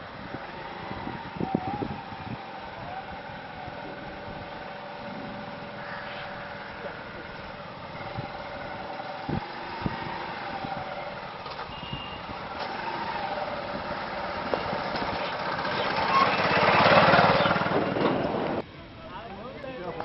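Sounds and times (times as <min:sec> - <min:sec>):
motorcycle engine idling: 0:10.5 - 0:18.0.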